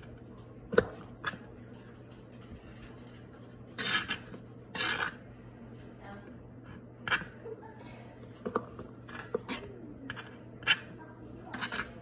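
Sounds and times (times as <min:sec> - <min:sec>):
knife cutting strokes: 0:03.8 - 0:05.2.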